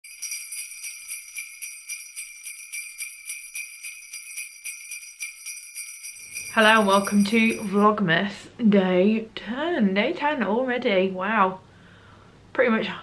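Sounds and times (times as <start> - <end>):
sleigh bells jingling: 0.0 - 7.9.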